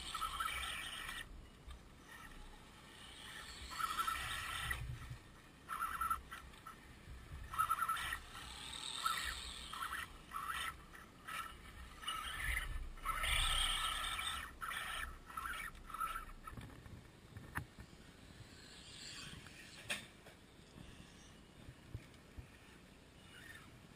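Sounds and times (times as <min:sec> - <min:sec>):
electric motor and gears whining: 0:00.0 - 0:16.7.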